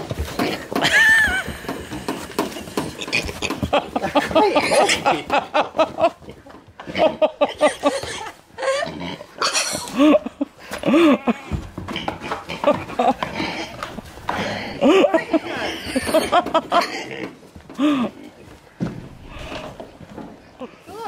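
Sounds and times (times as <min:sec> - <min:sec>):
piglets grunting and squealing: 0:06.3 - 0:10.2, 0:10.9 - 0:17.4.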